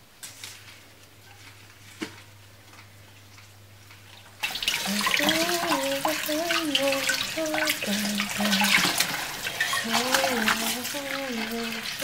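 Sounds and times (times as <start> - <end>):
faucet water running into bowl: 4.4 - 12.0.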